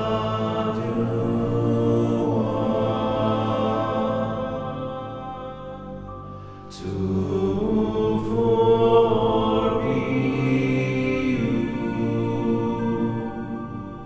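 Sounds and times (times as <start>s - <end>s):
slow music of held tones: 0.0s - 14.0s.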